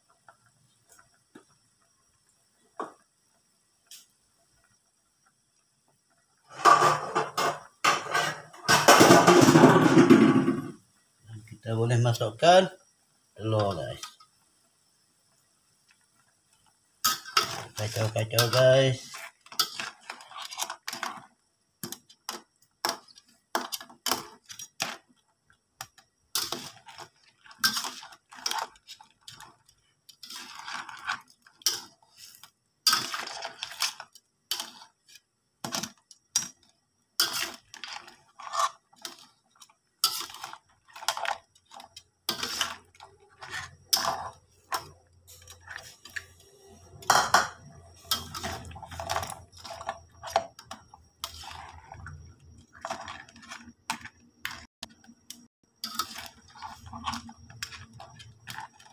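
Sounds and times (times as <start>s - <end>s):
metal spatula scraping a wok: 6.5s - 10.6s, 17.0s - 21.3s, 26.3s - 36.6s, 37.2s - 39.4s, 40.0s - 54.7s, 55.8s - 58.9s.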